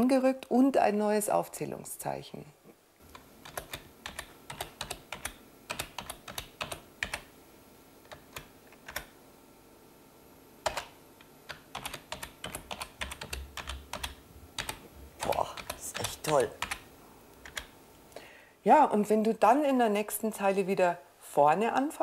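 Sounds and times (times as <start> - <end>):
typing on computer keyboard: 3.1 - 7.3, 8.1 - 9.1, 10.6 - 17.7.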